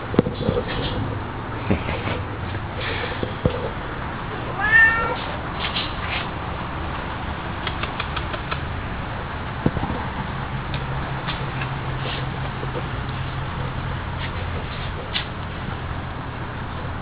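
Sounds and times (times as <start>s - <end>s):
cat meowing: 4.5s - 5.3s.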